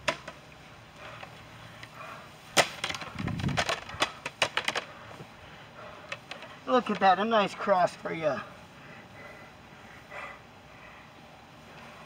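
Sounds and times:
plastic signs clattering: 2.5 - 5.0.

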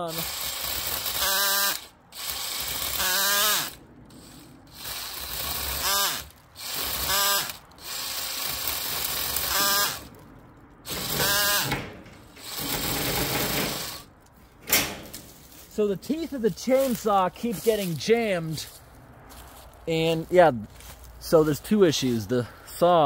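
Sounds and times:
chainsaw cutting branch: 0.0 - 10.2, 10.8 - 11.8
drill motor whirring: 0.0 - 10.2, 10.8 - 14.1.

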